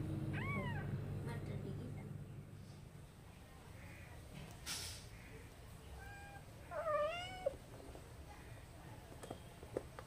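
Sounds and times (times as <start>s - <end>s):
cat meowing: 0.3s - 0.9s, 5.9s - 7.6s.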